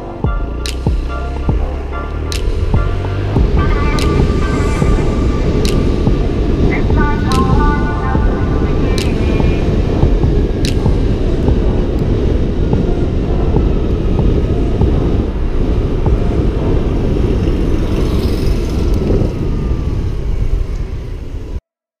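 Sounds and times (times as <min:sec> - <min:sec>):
wind rumble on microphone: 0:00.0 - 0:21.6
scooter engine at speed: 0:16.1 - 0:21.5.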